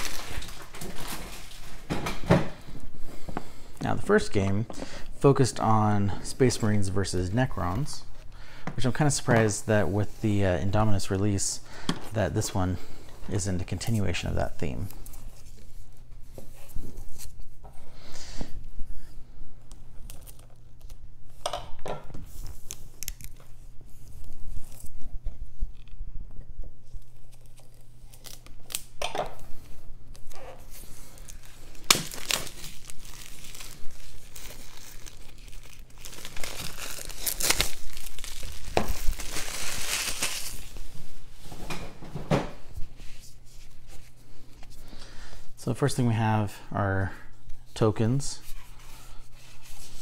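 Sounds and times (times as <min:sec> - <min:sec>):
cardboard packaging rustling: 0:00.0 - 0:02.1, 0:29.6 - 0:41.4.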